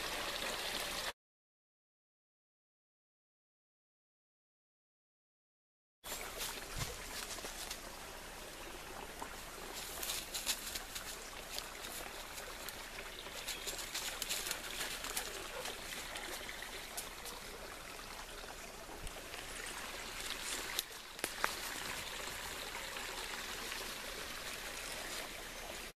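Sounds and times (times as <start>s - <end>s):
leaves and twigs crackling underfoot: 6.1s - 8.0s, 9.2s - 17.5s, 20.1s - 22.6s
steady trickling hiss: 6.1s - 25.9s.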